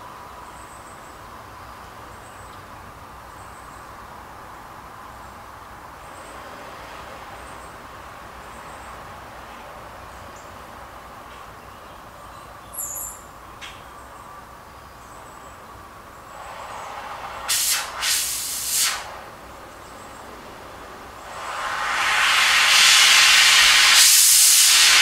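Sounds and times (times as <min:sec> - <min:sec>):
cutting torch flame hissing: 0:16.3 - 0:19.4, 0:21.2 - 0:25.0.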